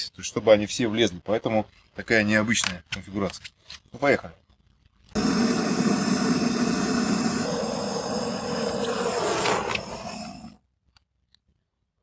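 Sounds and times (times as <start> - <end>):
gas torch flame hissing: 5.2 - 10.6.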